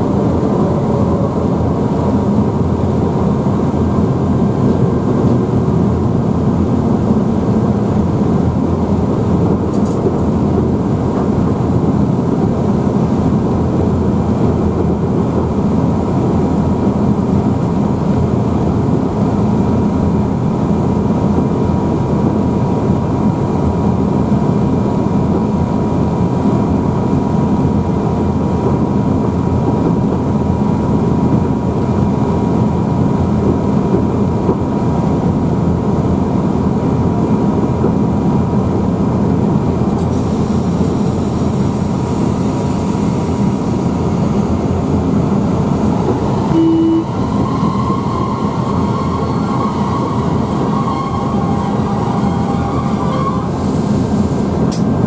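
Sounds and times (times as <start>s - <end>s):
electric locomotive running: 0.0s - 55.0s
short beep: 46.5s - 47.2s.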